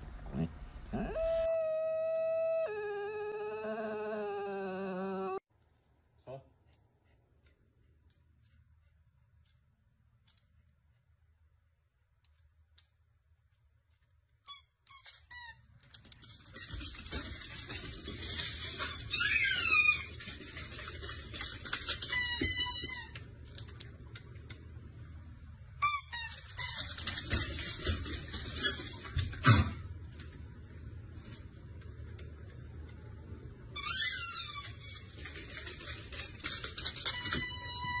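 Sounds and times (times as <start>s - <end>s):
dog yipping: 0.9s - 5.4s.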